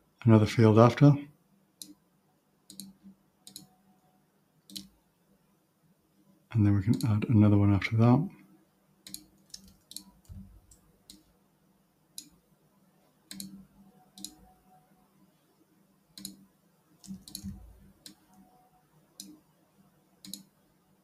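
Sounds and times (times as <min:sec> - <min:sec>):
computer mouse clicks: 0:01.8 - 0:02.0, 0:02.7 - 0:03.7, 0:04.7 - 0:05.0, 0:09.0 - 0:11.3, 0:12.2 - 0:12.4, 0:13.3 - 0:14.5, 0:16.2 - 0:16.4, 0:17.0 - 0:18.5, 0:19.2 - 0:19.4, 0:20.2 - 0:20.5.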